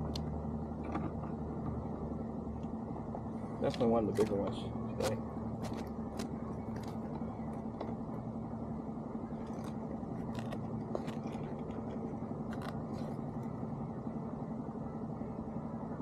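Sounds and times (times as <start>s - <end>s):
steady low hum: 0.0s - 16.0s
hands clicking and scraping: 9.4s - 11.9s.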